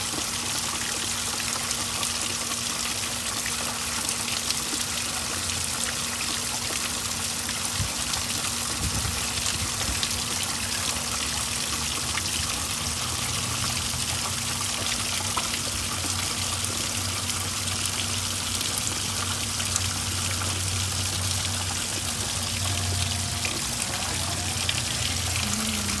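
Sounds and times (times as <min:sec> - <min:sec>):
water trickling and splashing: 0:00.0 - 0:26.0
low steady hum: 0:15.6 - 0:26.0.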